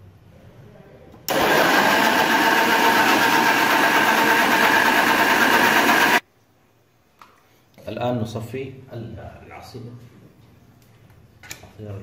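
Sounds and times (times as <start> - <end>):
kitchen blender running: 1.3 - 6.2.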